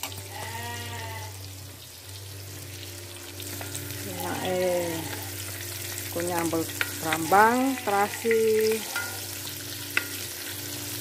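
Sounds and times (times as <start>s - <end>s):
fish sizzling in hot oil: 0.0s - 11.0s
spoon turning fish in oil: 3.5s - 11.0s.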